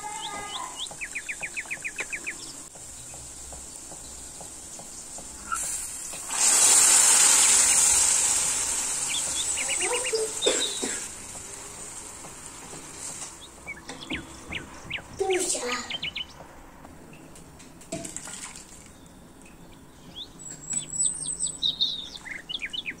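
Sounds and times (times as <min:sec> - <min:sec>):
small birds chirping: 0:00.0 - 0:17.9, 0:18.5 - 0:23.0
liquid hissing in hot pan: 0:02.8 - 0:13.9.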